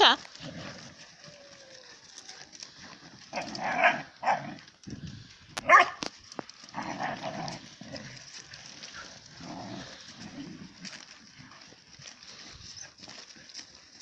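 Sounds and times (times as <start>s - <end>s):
puppies barking and yipping: 5.6s - 14.0s.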